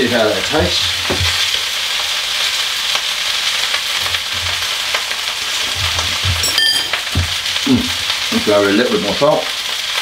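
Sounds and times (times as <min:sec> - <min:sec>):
rice sizzling in a wok: 0:00.0 - 0:10.0
ringing clink: 0:06.4 - 0:07.0.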